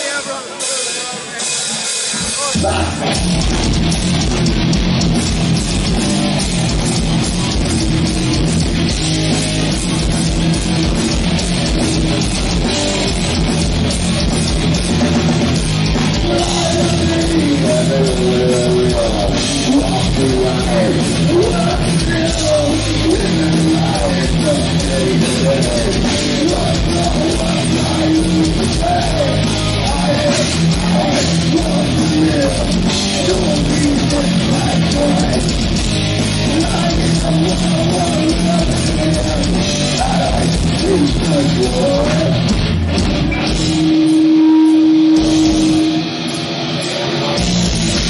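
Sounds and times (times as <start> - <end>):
death metal band playing live: 0.0 - 48.0
wavering higher line: 43.7 - 47.2.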